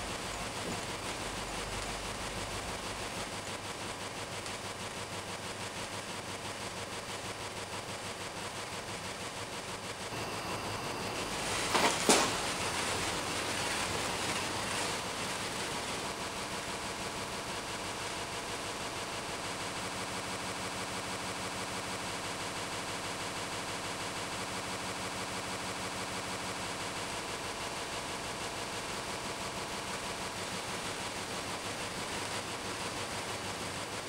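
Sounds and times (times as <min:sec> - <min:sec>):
pulsing machine-like drone: 0:10.0 - 0:11.7.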